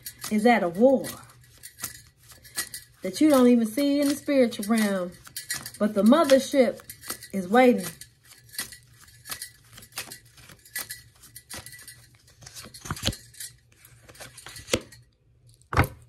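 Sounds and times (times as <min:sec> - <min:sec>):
metal bangles clinking: 0:00.0 - 0:15.2
cards being shuffled: 0:01.1 - 0:14.9.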